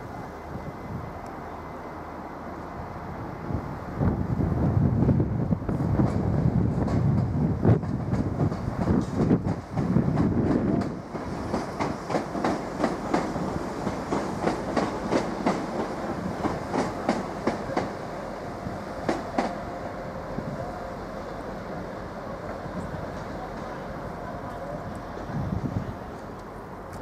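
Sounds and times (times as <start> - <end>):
train wheels clattering over rail joints: 6.0 - 18.0.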